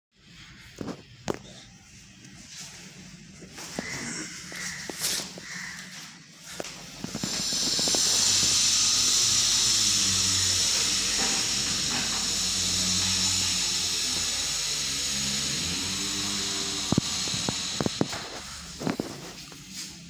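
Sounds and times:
paint spray gun hissing: 6.8 - 19.9
low hum: 7.0 - 19.9.

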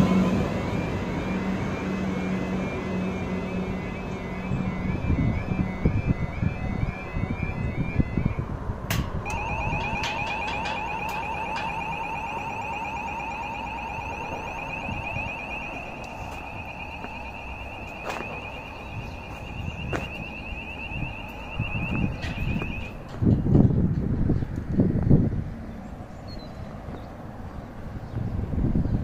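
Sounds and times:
level crossing alarm warbling: 0.0 - 8.6, 9.2 - 23.1.

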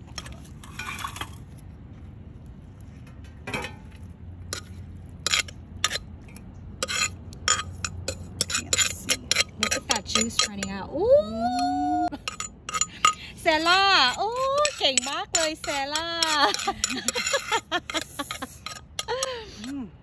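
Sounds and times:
metal spoon scraping clay mortar: 4.5 - 6.1, 6.7 - 10.9, 11.6 - 19.8.

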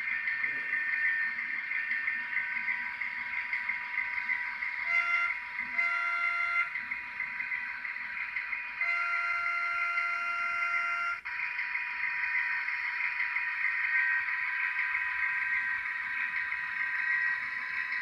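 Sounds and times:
diesel engine running from small speaker: 0.0 - 18.0
locomotive horn toots: 4.8 - 6.8, 8.8 - 11.3.

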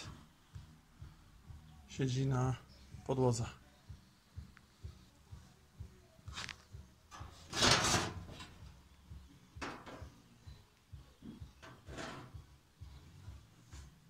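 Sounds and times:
metal panel scraping and knocking: 7.1 - 8.7, 9.6 - 10.2, 11.2 - 12.5.

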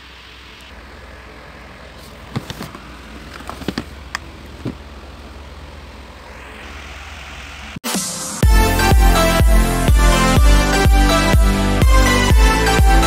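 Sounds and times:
low hum: 5.0 - 7.8.

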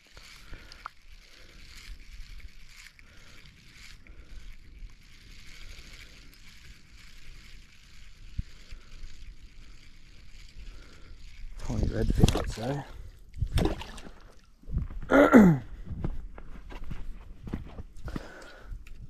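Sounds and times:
small waves lapping: 11.2 - 14.6
wind buffeting microphone: 14.6 - 16.6.

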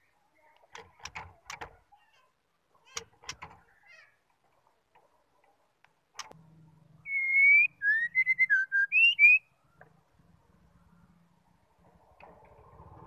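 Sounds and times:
sharp click: 5.8 - 6.4
bird singing whistled notes: 7.0 - 9.6.

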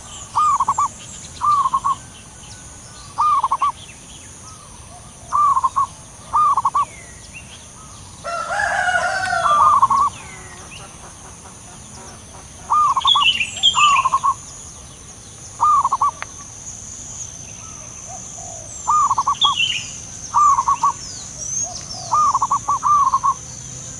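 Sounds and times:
harsh bird call: 0.0 - 2.1, 3.1 - 3.8, 5.3 - 6.9, 7.9 - 10.9, 12.6 - 14.5, 15.6 - 16.5, 17.6 - 23.5
doves cooing: 0.0 - 2.4, 3.1 - 3.8, 4.5 - 6.9, 7.8 - 14.5, 15.6 - 16.5, 17.6 - 23.6
small birds chirping: 0.0 - 23.9.

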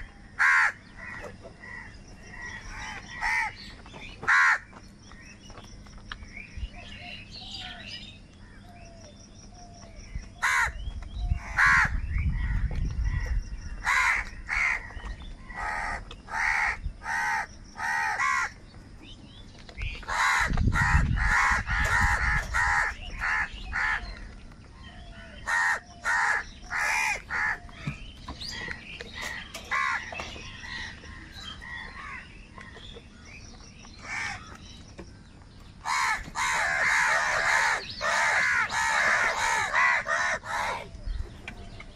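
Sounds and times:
crows cawing: 0.0 - 4.8, 10.4 - 10.8, 11.4 - 18.6, 20.0 - 32.8, 34.0 - 34.6, 35.8 - 41.1.

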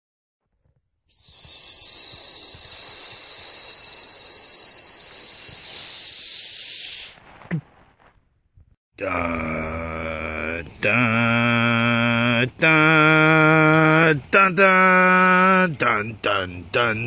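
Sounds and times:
high rushing hiss: 1.1 - 7.2.

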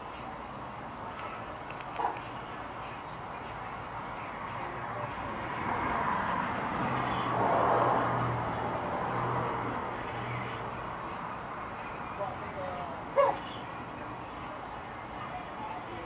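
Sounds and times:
insects chirping: 0.0 - 16.0
vehicle passing by: 3.6 - 13.2.

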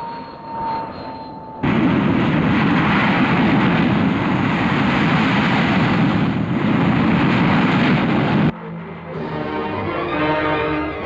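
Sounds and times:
jet aircraft low pass: 0.0 - 11.0.

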